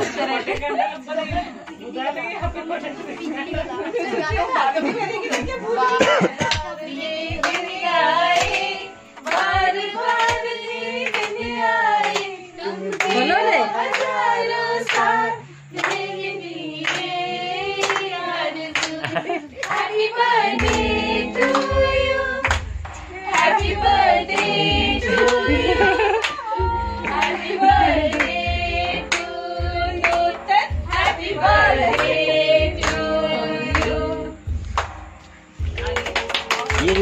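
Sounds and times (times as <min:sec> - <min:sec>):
women and girls singing: 0:00.0 - 0:34.6
low pulsing beat: 0:01.1 - 0:01.6, 0:02.2 - 0:06.2, 0:19.0 - 0:37.0
hand claps: 0:05.2 - 0:05.6, 0:06.4 - 0:14.2, 0:14.8 - 0:15.1, 0:15.7 - 0:26.4, 0:27.0 - 0:29.4, 0:30.0 - 0:30.3, 0:30.9 - 0:37.0.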